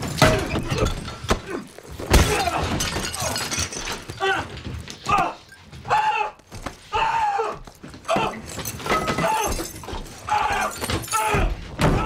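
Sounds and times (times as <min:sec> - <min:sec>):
men grunting and yelling: 0:10.2 - 0:12.0.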